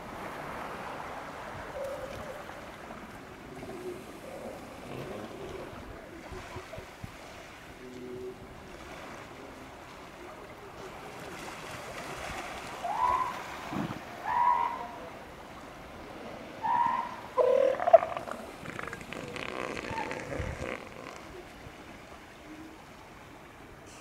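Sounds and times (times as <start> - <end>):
elephant seal calling: 12.8 - 15.1, 16.6 - 21.5
background hiss: 12.8 - 24.0.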